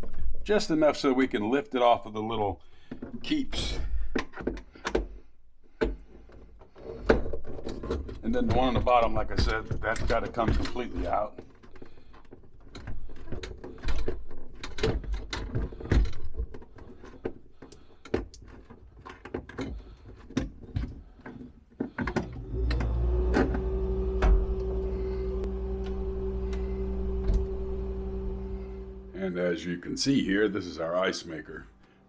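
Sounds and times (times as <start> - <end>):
steady hum: 22.4 - 29.4.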